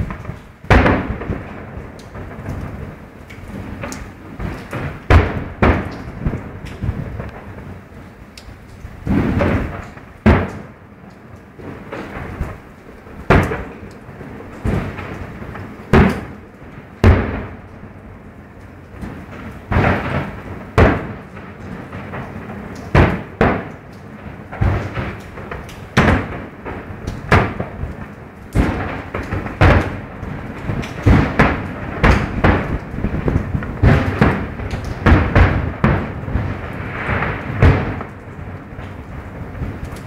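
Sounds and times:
firework shells bursting: 0.0 - 7.7, 8.6 - 10.8, 14.6 - 16.4, 21.9 - 40.0.

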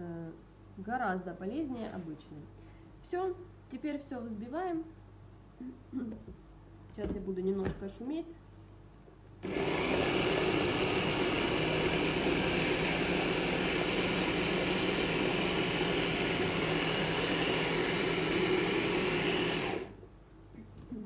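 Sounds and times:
hand blender motor running: 9.4 - 20.0.

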